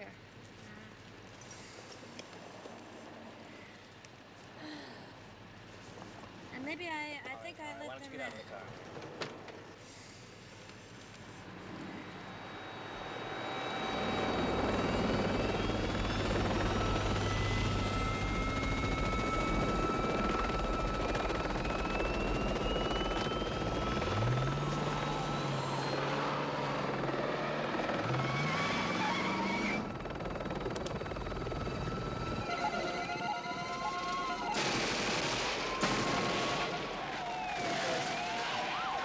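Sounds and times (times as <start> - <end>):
helicopter rotor and turbine: 9.6 - 39.0.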